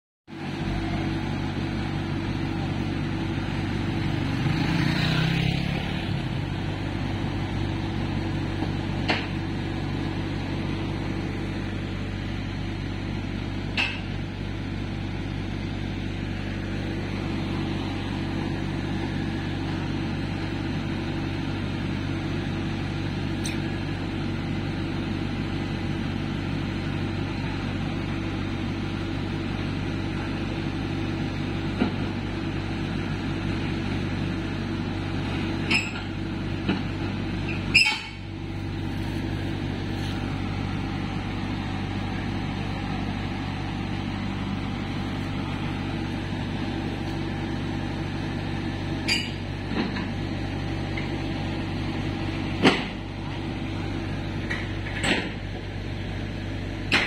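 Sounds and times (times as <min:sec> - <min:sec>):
diesel engine idling: 0:00.3 - 0:57.0
motorcycle passing: 0:04.0 - 0:06.6.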